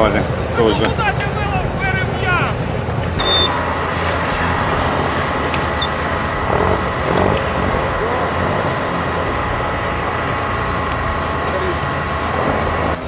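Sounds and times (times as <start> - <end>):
off-road engines humming: 0.0 - 13.0
thin even whine: 0.0 - 13.0.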